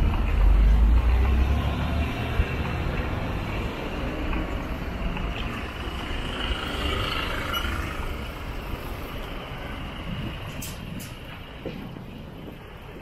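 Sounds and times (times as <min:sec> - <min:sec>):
road traffic passing: 0:00.0 - 0:13.0.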